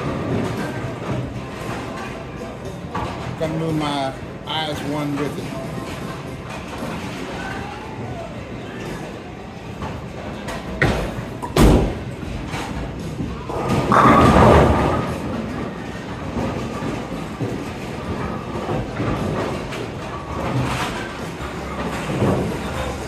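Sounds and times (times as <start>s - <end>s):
faint background music: 0.0s - 23.0s
bowling ball rolling: 5.6s - 23.0s.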